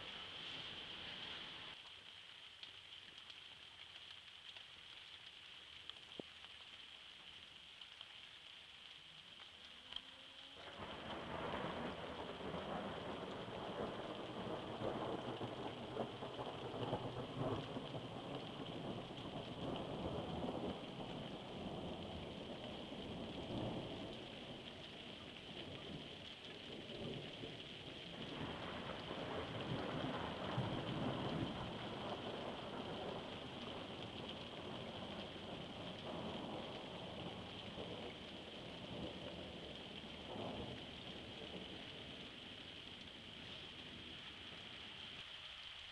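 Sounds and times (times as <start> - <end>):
steady rain falling: 0.0 - 45.9
low thunder rumbles: 10.7 - 42.4.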